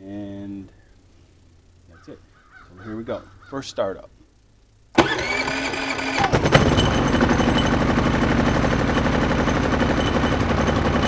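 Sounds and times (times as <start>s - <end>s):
electric starter cranking: 4.9s - 11.0s
generator engine running: 5.0s - 11.0s.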